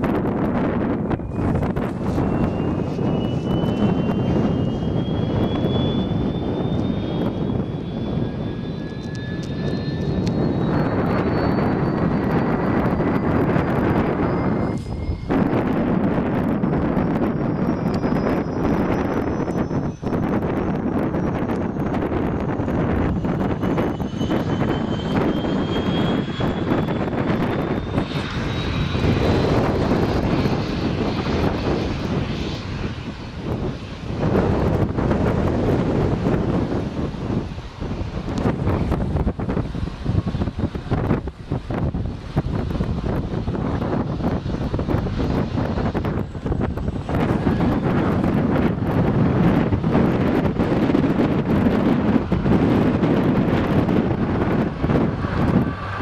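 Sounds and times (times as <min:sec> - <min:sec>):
helicopter rotor rushing: 0:00.0 - 0:56.0
high turbine whine: 0:00.0 - 0:56.0.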